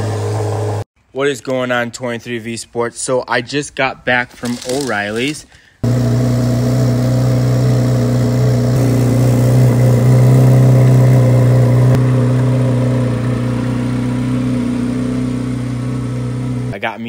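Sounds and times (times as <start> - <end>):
car engine idling: 5.8 - 16.8.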